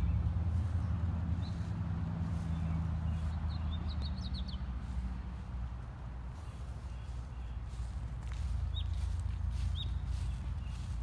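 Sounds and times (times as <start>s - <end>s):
steady low rumble: 0.0s - 11.0s
high bird chirps: 8.4s - 11.0s.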